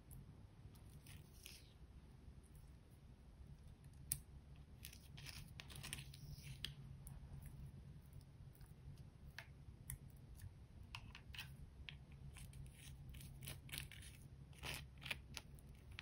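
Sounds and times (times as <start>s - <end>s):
spatula scraping: 12.3s - 16.0s.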